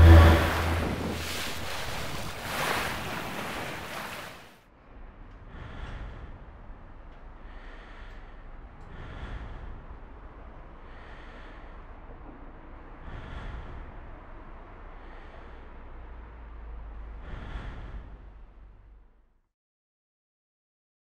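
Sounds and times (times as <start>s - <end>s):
sea waves rushing: 0.0s - 4.6s.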